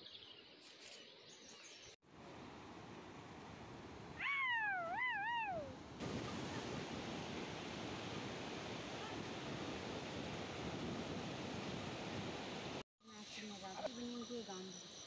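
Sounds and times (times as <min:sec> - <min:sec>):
river rushing: 0:06.0 - 0:12.8.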